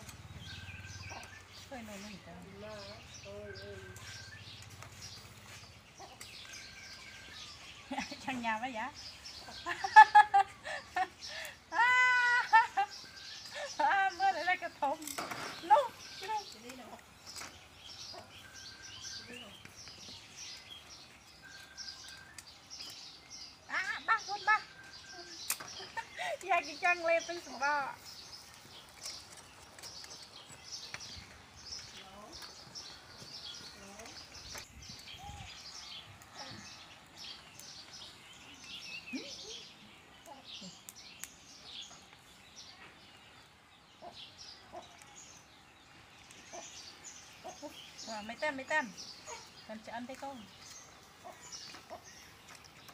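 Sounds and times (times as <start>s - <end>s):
small birds chirping: 0.0s - 52.9s
whistled bird notes: 17.3s - 23.5s
faint clicks: 40.2s - 41.4s.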